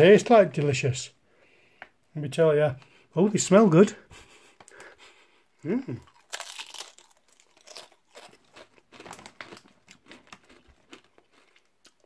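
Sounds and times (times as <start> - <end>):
crisps crunching: 5.9 - 12.0
crisp packet crinkling: 6.1 - 12.0.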